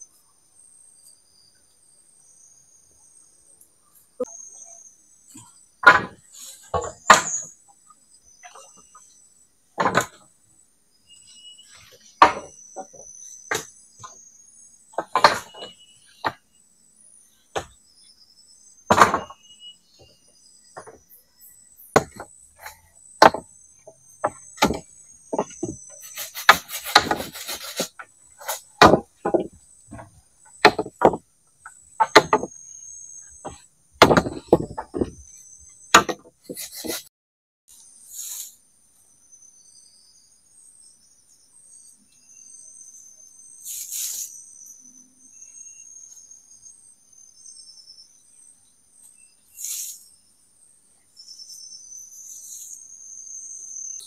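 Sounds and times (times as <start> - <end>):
insects chirping: 0.0 - 37.1, 37.7 - 54.0
wooden poles knocking: 5.8 - 7.4, 12.2 - 14.1, 23.2 - 31.2, 32.0 - 32.5, 33.4 - 35.2, 36.0 - 36.4.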